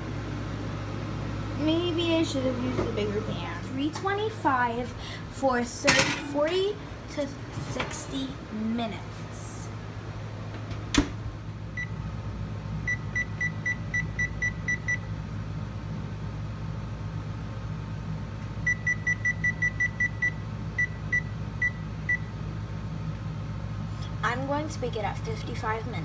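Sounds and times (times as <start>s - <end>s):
oven door shutting knock: 10.6s - 11.2s
oven control panel beeping: 11.8s - 12.0s, 12.8s - 15.1s, 18.6s - 22.3s.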